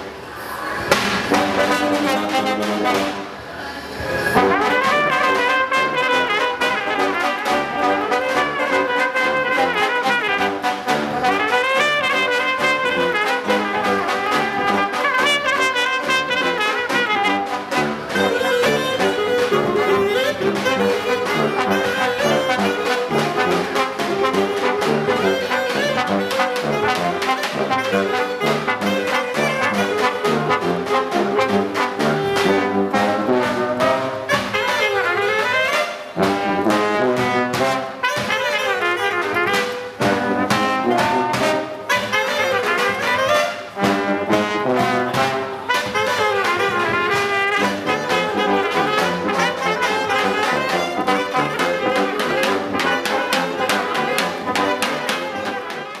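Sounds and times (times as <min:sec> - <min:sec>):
brass band playing upbeat tune: 0:00.8 - 0:03.5, 0:04.2 - 0:56.0.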